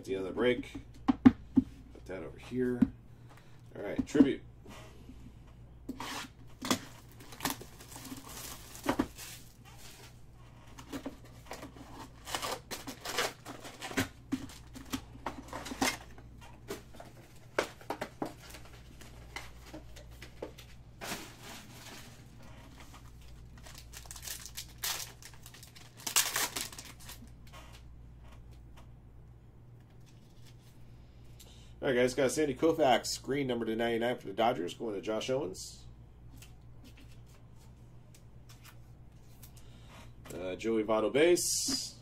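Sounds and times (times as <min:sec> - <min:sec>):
steady low hum: 0:00.0 - 0:42.0
plastic wrappers crinkling: 0:06.6 - 0:10.2, 0:10.8 - 0:16.1, 0:16.9 - 0:27.3.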